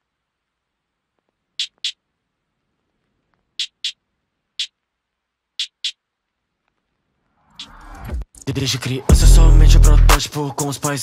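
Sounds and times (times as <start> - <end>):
sharp high-pitched clicks: 1.6 - 2.0, 3.6 - 4.0.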